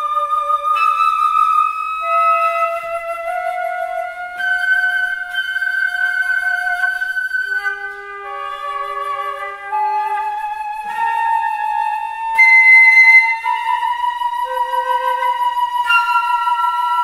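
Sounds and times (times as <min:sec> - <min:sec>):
loud high flute note: 0:00.0 - 0:17.0
two flutes playing held notes: 0:00.0 - 0:17.0.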